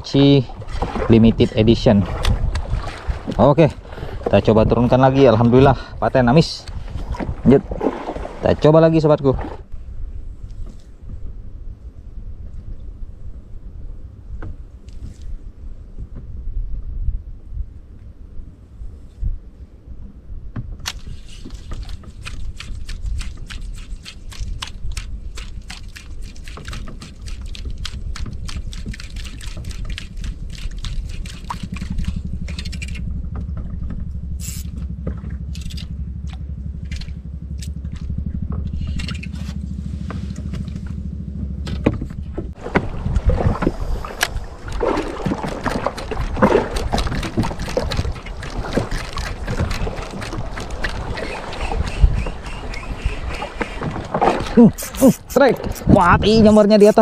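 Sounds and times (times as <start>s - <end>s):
wind and water rushing: 0.0s - 11.4s, 20.6s - 37.2s, 41.7s - 57.0s
low rumble: 0.0s - 20.6s, 27.4s - 54.7s
fishing reel ticking: 50.8s - 53.9s.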